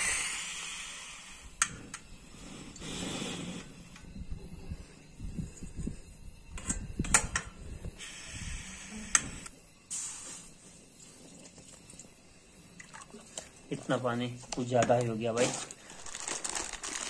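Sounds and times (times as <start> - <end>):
gas hiss: 0.0 - 4.1, 7.1 - 11.2
wind rumble on microphone: 4.0 - 9.5.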